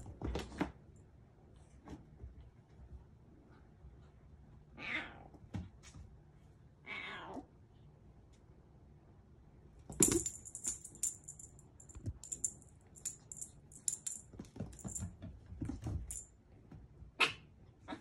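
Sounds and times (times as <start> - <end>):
small bell jingling: 9.9 - 15.1, 16.0 - 16.3.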